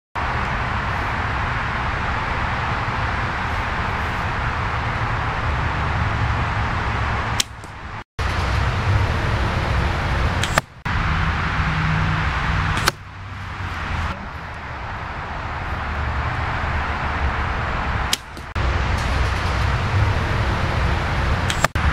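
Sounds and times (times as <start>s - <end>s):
compound bow snapping: 7.4s - 7.8s, 10.4s - 10.7s, 12.8s - 13.0s, 18.1s - 18.5s, 21.5s - 21.8s
arrows hitting bag target: 10.4s - 10.8s, 21.4s - 21.8s.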